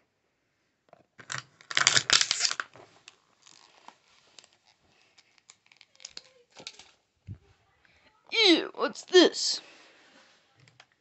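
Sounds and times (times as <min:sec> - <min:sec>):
plastic packaging tearing: 0:01.2 - 0:07.0
faint clicks and rustles: 0:02.5 - 0:08.3.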